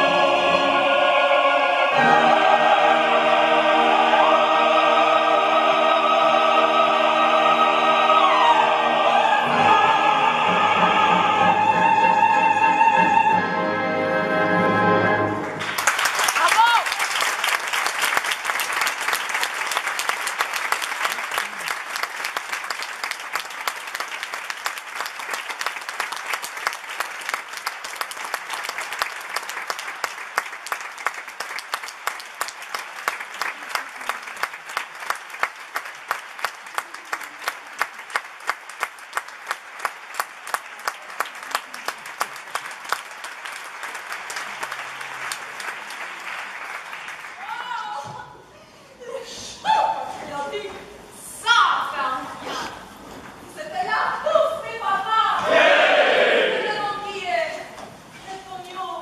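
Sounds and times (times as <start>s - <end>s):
audience applauding: 15.4s - 48.0s.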